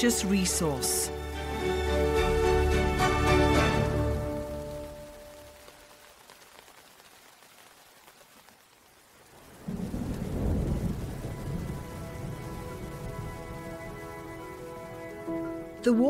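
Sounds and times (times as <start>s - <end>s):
heavy rain: 0.0s - 16.0s
light rain hissing: 0.0s - 16.0s
low rumble of thunder: 9.5s - 15.0s.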